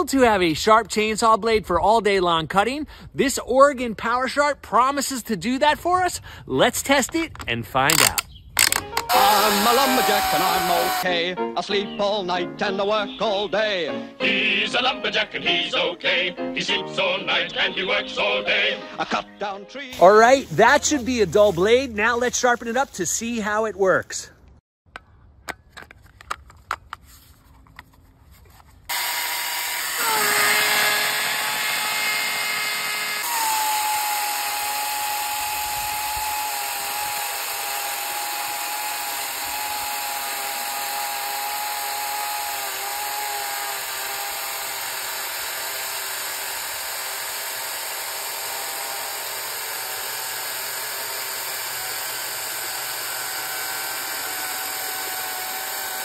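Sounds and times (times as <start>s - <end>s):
chain tearing through wood: 7.9s - 11.0s, 28.9s - 56.0s
electric chainsaw motor whine: 8.6s - 11.1s, 28.9s - 56.0s.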